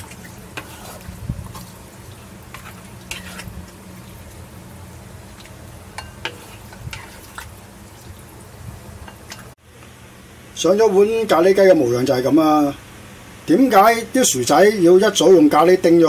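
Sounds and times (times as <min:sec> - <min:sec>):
spatula scraping and clinking: 0:00.0 - 0:01.8, 0:02.5 - 0:03.6, 0:05.9 - 0:07.5
spatula stirring food in wok: 0:00.0 - 0:09.6
steady low hum: 0:00.0 - 0:13.6.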